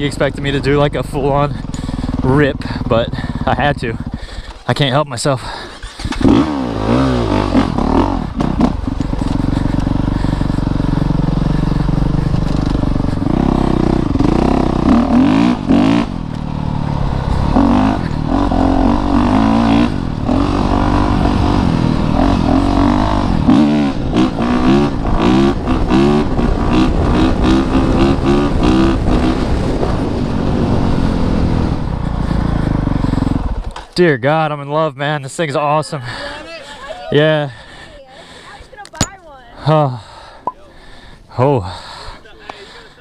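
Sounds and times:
dirt bike engine revving: 0.0 - 33.9.

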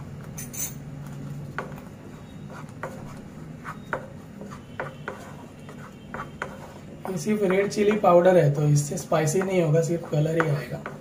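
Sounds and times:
spatula scraping pan: 1.6 - 11.0
spatula knocking against pan: 9.2 - 11.0.

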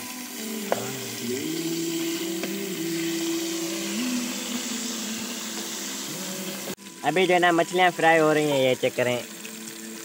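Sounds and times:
fish sizzling in hot oil: 0.0 - 10.0
low hum: 0.4 - 7.0.

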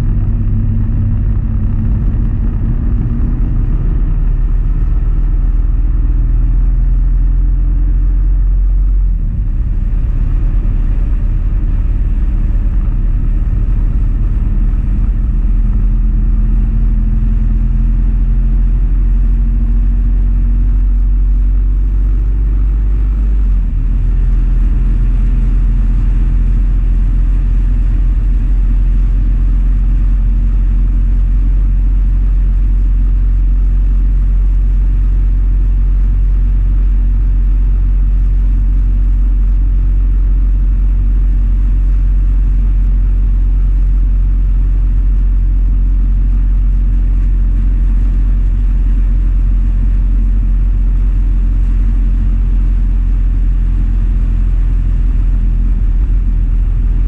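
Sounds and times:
wind rush on microphone: 0.0 - 7.3, 8.3 - 30.7
motorcycle engine drone: 0.0 - 57.0.

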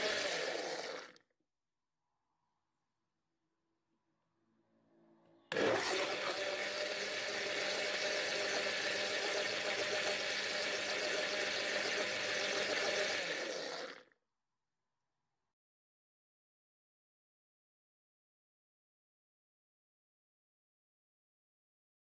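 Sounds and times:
electric blender running: 0.0 - 1.2, 5.5 - 14.1.

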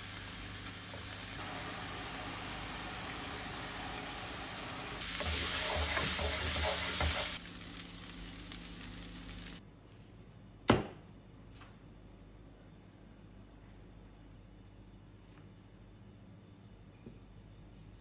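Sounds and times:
chicken sizzling in a frying pan: 0.0 - 9.6
wooden spatula scraping: 5.0 - 7.4.

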